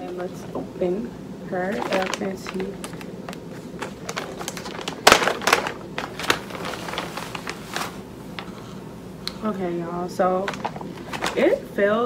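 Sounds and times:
plastic bag crinkling: 1.6 - 8.6, 10.4 - 11.6.

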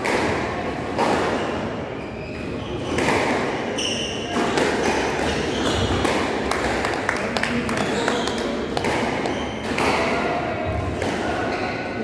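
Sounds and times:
squash ball thudding: 2.8 - 7.1, 8.3 - 11.4.

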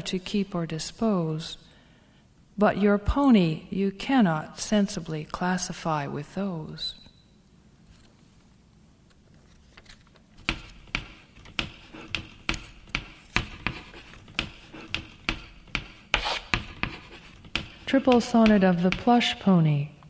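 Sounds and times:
sharp taps: 10.4 - 19.3.

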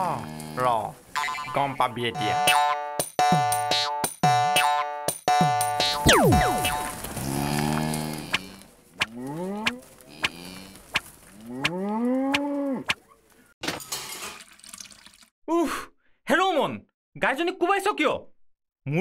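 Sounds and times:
cow mooing: 7.2 - 10.8.

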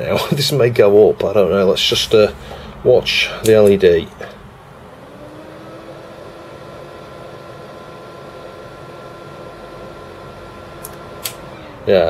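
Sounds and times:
computer fan hum with whine: 0.0 - 12.0
short sharp clicks: 10.8 - 11.5.

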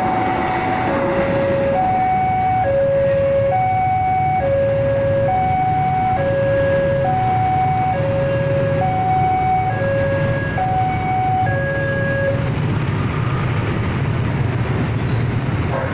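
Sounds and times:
level crossing alarm: 0.0 - 12.4.

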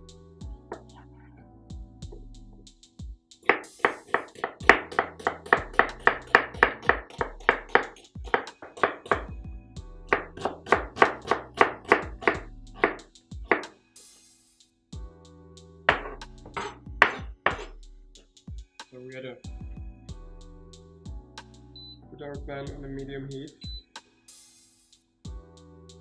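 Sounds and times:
background music: 0.0 - 26.0
knife chopping on cutting board: 0.7 - 0.9, 3.5 - 9.3, 10.1 - 13.7, 15.9 - 17.7.

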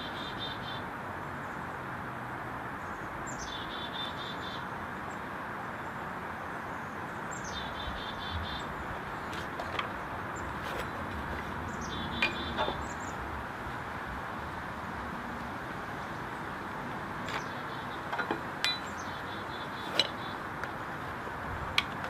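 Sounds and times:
steady outdoor hiss: 0.0 - 22.0
light metallic clinks and taps: 18.1 - 19.0.

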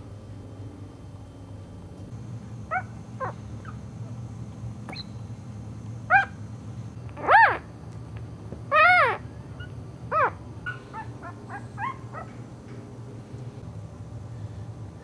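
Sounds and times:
puppy whimpering: 10.1 - 12.3.

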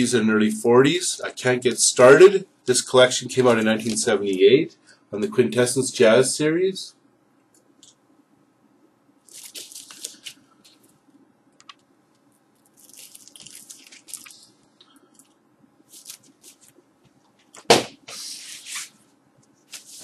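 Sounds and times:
plastic wrap and cardboard crinkling: 9.2 - 10.9, 12.6 - 14.5, 15.9 - 16.8.

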